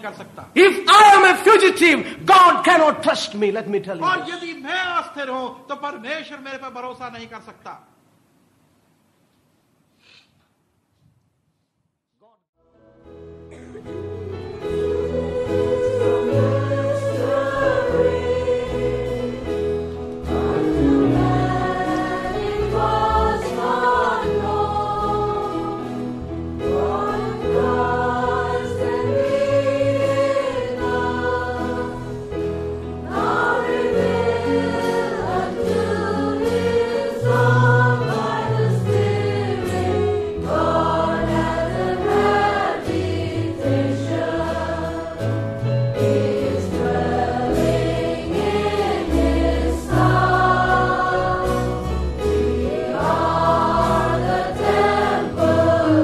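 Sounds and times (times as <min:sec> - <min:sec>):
low instrumental accompaniment: 0:13.1 - 0:56.0
choir singing worship song: 0:13.5 - 0:56.0.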